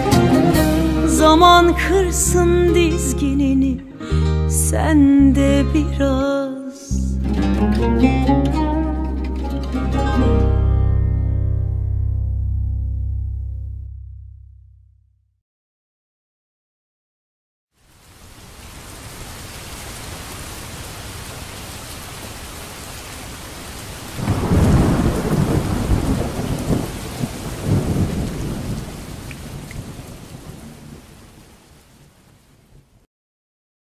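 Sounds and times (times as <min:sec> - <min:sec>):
steady rain: 0:17.8 - 0:33.1
rumbling thunderclap: 0:24.2 - 0:31.4.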